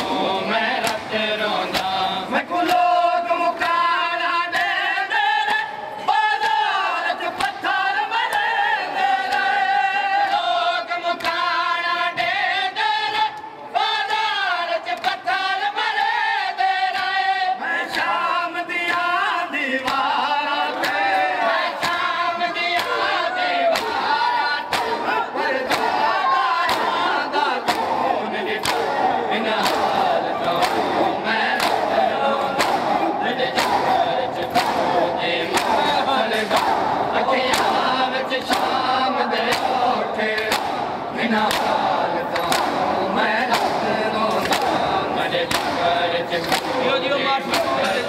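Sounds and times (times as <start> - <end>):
choir singing: 0.0 - 48.0
chest-beating slaps: 26.6 - 27.0, 27.6 - 46.9, 47.5 - 48.0
man chanting: 41.2 - 48.0.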